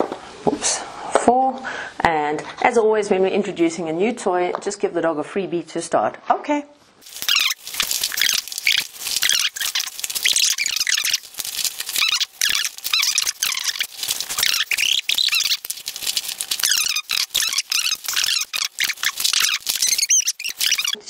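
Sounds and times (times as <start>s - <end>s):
high squeaky noises: 7.1s - 21.0s.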